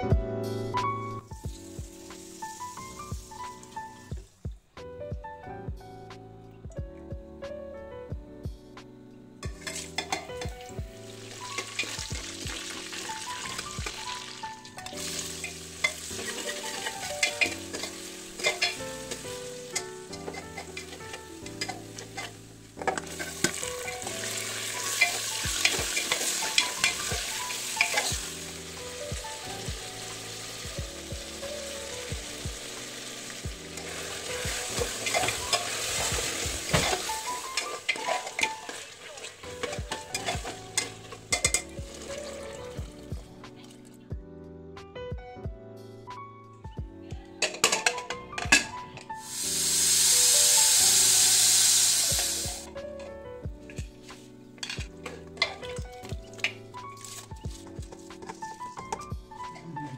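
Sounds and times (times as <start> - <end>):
quiet background music: 0.0 - 59.9
meat sizzling in hot oil: 1.3 - 4.1, 9.5 - 43.0, 49.2 - 52.7
ladle scraping a pot: 9.6 - 10.5, 11.4 - 12.1, 14.9 - 28.4, 33.7 - 42.3.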